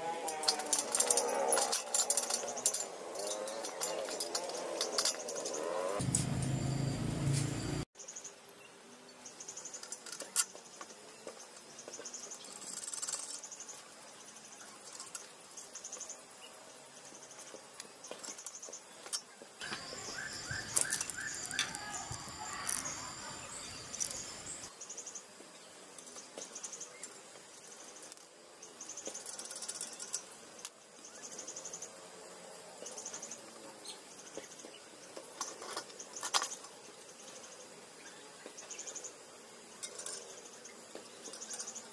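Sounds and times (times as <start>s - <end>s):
steel parts clicking and knocking: 0.2s - 6.6s, 19.1s - 23.2s
insects chirping in pulses: 19.6s - 25.2s.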